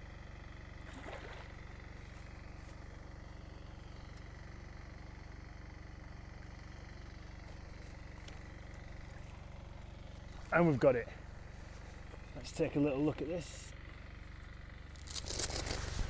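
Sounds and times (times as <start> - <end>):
low background hum: 0.0 - 16.0
fish splashing at surface: 0.9 - 1.6.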